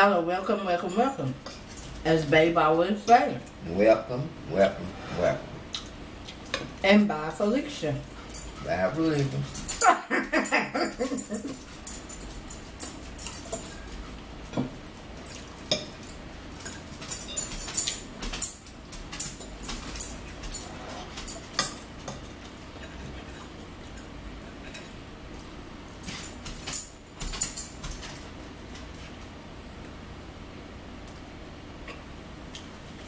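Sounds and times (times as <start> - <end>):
forks clinking on plates: 7.4 - 29.0.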